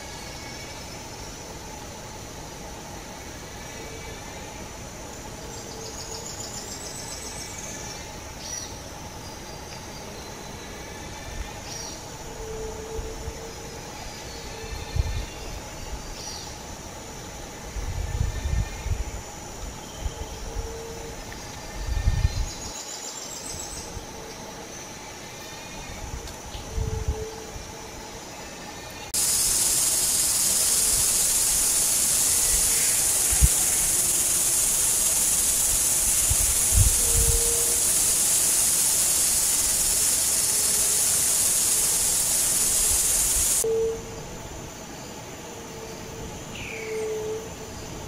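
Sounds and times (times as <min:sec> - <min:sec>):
insect trilling: 0:00.0 - 0:05.0, 0:28.3 - 0:44.2
steady background hiss and hum: 0:00.0 - 0:48.0.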